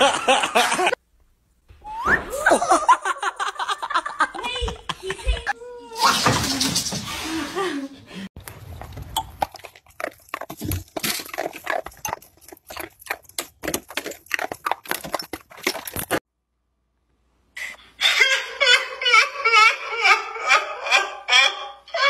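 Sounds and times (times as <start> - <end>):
dog chewing icicles: 8.5 - 16.2.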